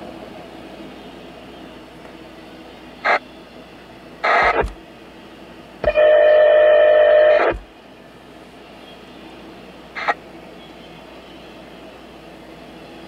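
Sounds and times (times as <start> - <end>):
freight train rumbling: 0.0 - 6.4
loud steady buzzing tone: 0.0 - 13.0
radio scanner squawking: 3.0 - 3.2, 4.2 - 4.8, 5.8 - 7.7, 10.0 - 10.2
static bursts: 3.0 - 3.2, 4.2 - 4.8, 5.8 - 7.7, 9.9 - 10.2.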